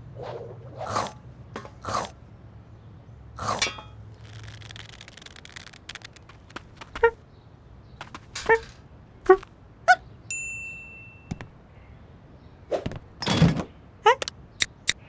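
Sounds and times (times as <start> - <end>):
scraping and rustling: 3.4 - 7.2, 8.0 - 9.5
bright metallic ding: 10.3 - 11.4.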